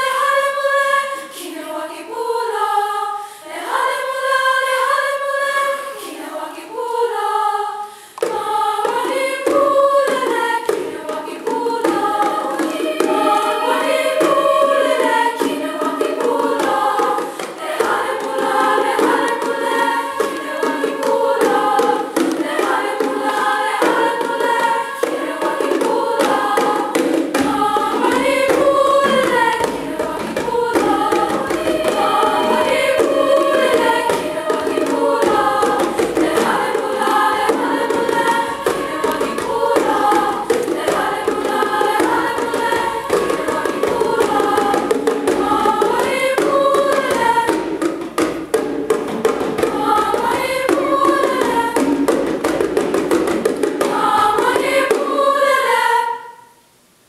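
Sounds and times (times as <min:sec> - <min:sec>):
women's choir singing: 0:00.0 - 0:56.6
grand piano accompaniment: 0:27.4 - 0:36.7.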